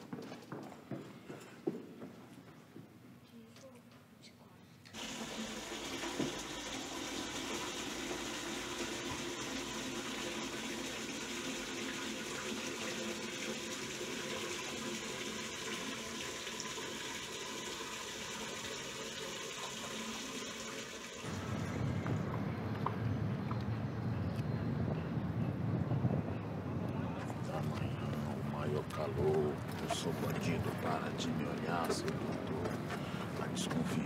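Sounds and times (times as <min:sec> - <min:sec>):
tap water running into bucket: 0:04.9 - 0:21.7.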